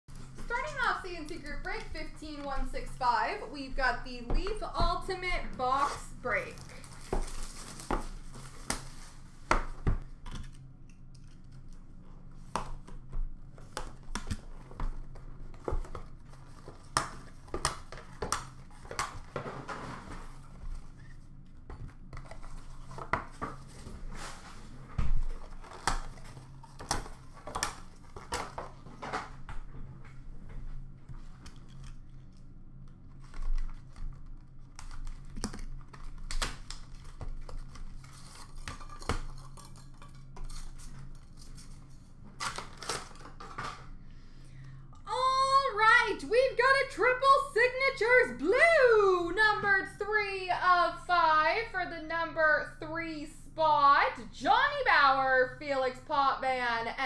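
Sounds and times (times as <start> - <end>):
low steady hum: 0.1 - 57.0
cardboard packaging tearing: 42.4 - 43.5.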